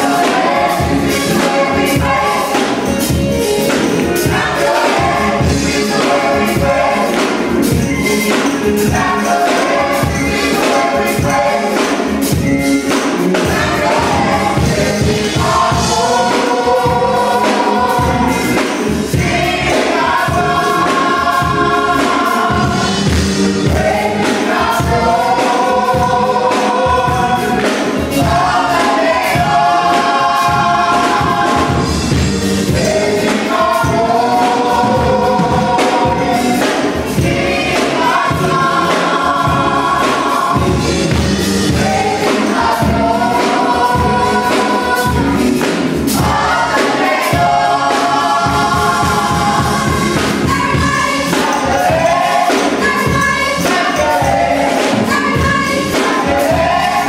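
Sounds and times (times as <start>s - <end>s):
gospel choir singing: 0.0s - 57.0s
steady beat: 0.0s - 57.0s.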